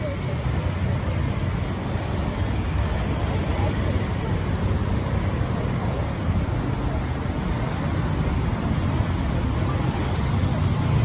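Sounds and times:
low rumble of road traffic: 0.0s - 11.0s.

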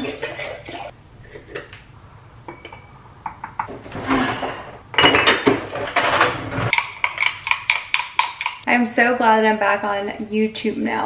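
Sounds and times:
glass bottles clinking: 2.5s - 3.6s, 5.0s - 8.6s.

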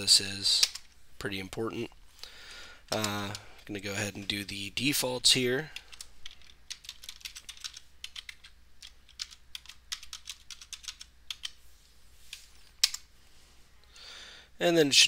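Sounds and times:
computer keyboard typing: 5.8s - 11.6s.

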